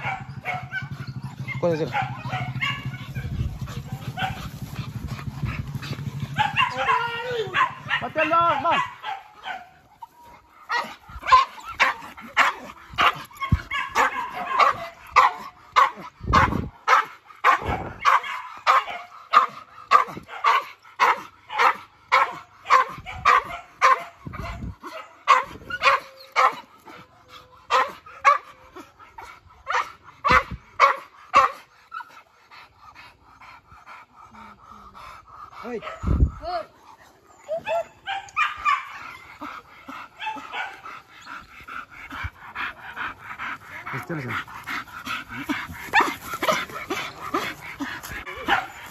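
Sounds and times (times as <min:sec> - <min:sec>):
dog barking: 0:00.0 - 0:04.6, 0:06.3 - 0:09.8, 0:10.7 - 0:26.7, 0:27.7 - 0:28.6, 0:29.6 - 0:31.7, 0:37.6 - 0:39.0, 0:40.2 - 0:40.9, 0:45.9 - 0:47.4, 0:48.3 - 0:48.9.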